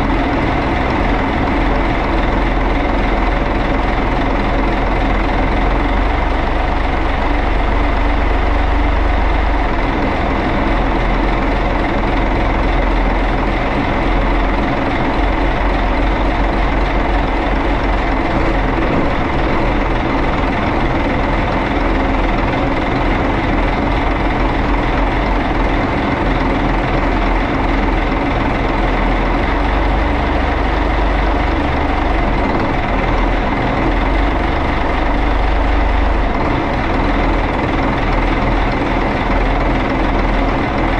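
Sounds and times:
marine diesel engine running: 0.0 - 40.9.

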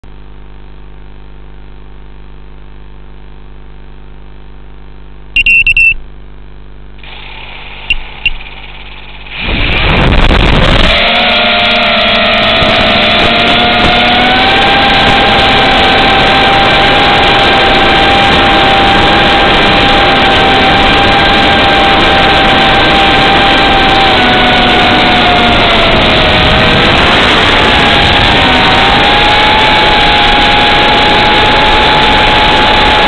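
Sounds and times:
electronic beeps: 5.3 - 6.1, 7.9 - 9.0
quadcopter motors whining: 7.0 - 33.0.

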